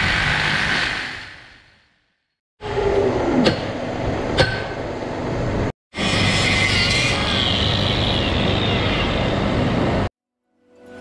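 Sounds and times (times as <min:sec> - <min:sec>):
steady mechanical noise: 0:02.6 - 0:10.1.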